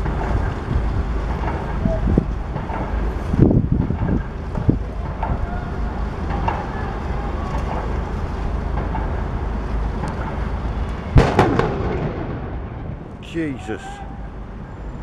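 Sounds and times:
wind buffeting microphone: 0.0 - 13.2
cannon bang with echoing tail: 11.2 - 13.1.

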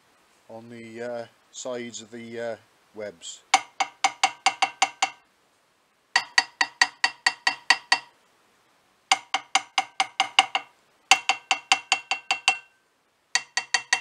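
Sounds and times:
hammer tapping ringing metal: 3.6 - 5.2, 6.2 - 8.2, 9.1 - 12.8, 13.4 - 14.0.

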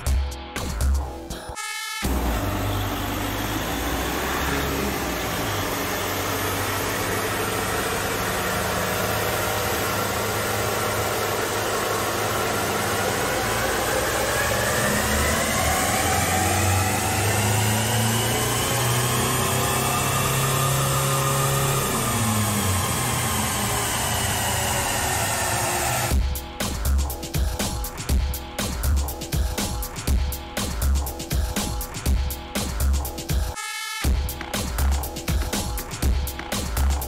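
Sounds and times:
diesel engine revving: 2.1 - 26.1.

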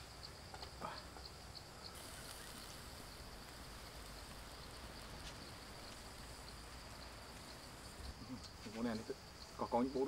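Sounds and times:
insect chirping: 0.0 - 10.0
soft steady hiss: 0.0 - 10.0.

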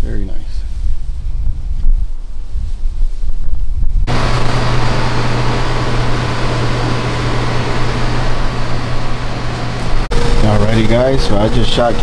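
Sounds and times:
air compressor running: 4.1 - 12.0.

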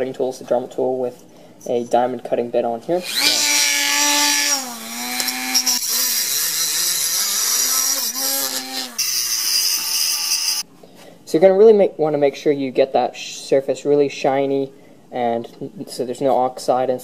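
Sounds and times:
rotary tool cutting metal pipe: 3.0 - 10.6.

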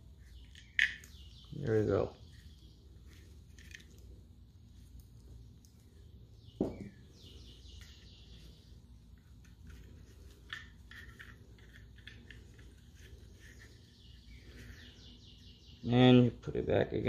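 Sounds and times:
pistol parts clicking: 0.4 - 1.2.

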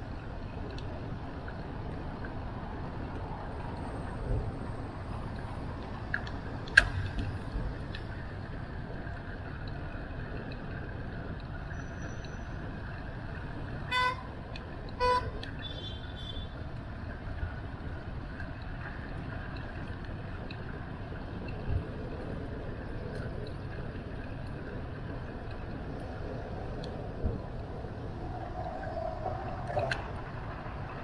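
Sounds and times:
traffic rumble: 0.0 - 31.0
wind: 0.0 - 31.0
vehicle horn toots: 13.9 - 14.3, 15.0 - 16.6.

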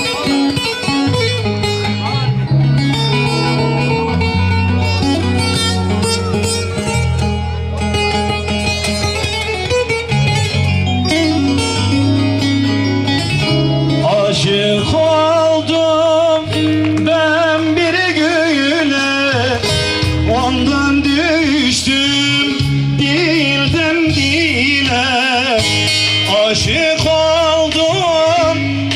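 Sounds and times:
plucked string instrument: 0.0 - 28.9
steady bass: 0.0 - 28.9
man singing into a microphone: 11.3 - 28.9.

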